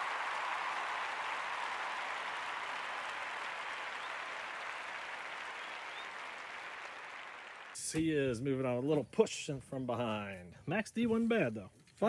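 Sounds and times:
crowd applauding and cheering: 0:00.0 - 0:07.8.

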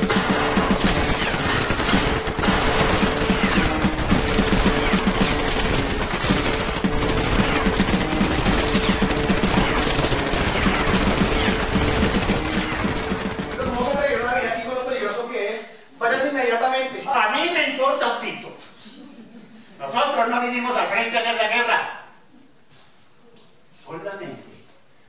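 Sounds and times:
dense machine-gun fire: 0:00.0 - 0:14.7.

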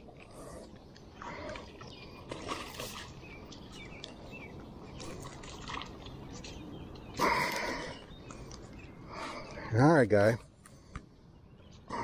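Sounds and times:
fish splashing in water: 0:01.1 - 0:04.2, 0:04.9 - 0:06.4.

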